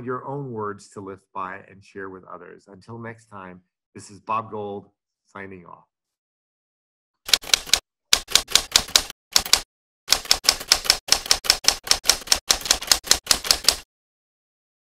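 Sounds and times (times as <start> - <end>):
typewriter key strikes: 7.3 - 13.8.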